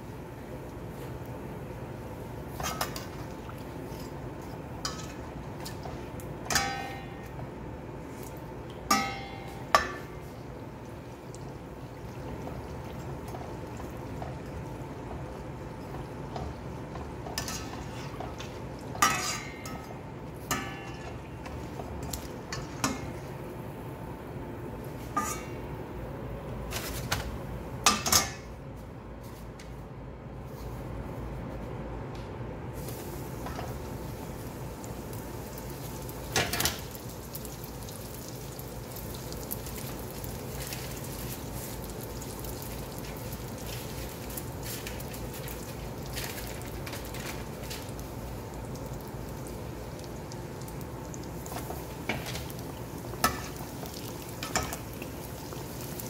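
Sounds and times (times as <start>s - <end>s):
metal skimmer clinking on pot: 6.4s - 7.3s, 8.9s - 10.2s
doughnut sizzling in hot oil: 32.8s - 56.0s.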